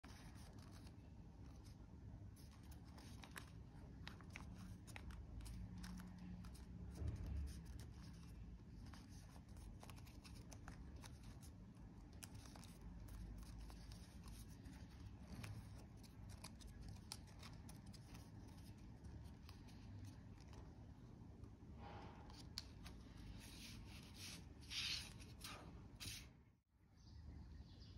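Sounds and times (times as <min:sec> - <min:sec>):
paper crinkling and rustling: 0:00.0 - 0:21.0.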